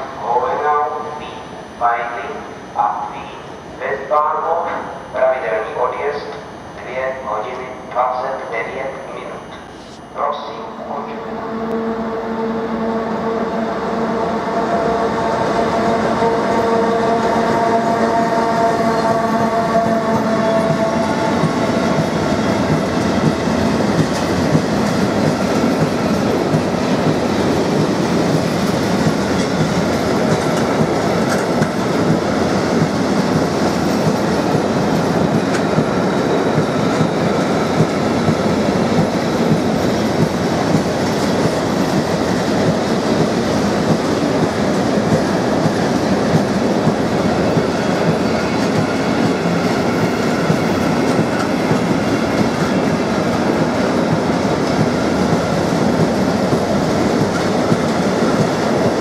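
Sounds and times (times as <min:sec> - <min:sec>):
locomotive humming tone: 0:04.1 - 0:59.0
train wheels rolling on rails: 0:13.6 - 0:59.0.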